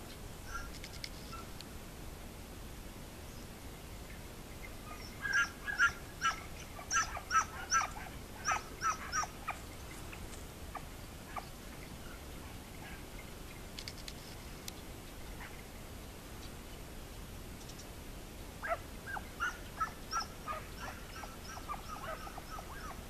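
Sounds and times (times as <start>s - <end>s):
animal short high calls: 0.5s - 1.5s, 4.9s - 9.6s, 18.6s - 23.0s.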